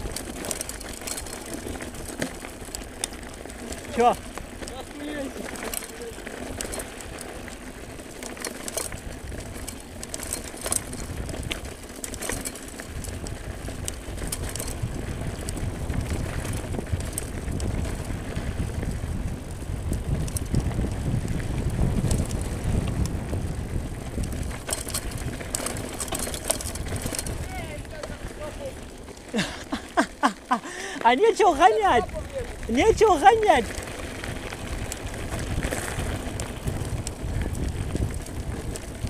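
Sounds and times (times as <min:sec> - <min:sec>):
wind rumble on microphone: 0:00.0 - 0:29.6, 0:31.5 - 0:39.0
bike rattling over bumps: 0:00.0 - 0:39.0
tyres on dirt: 0:00.0 - 0:39.0.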